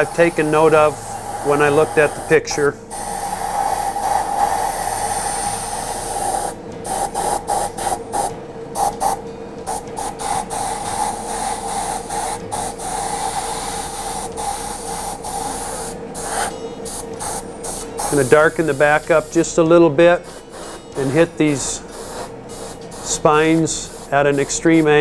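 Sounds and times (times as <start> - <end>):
airbrush hissing: 0.0 - 25.0.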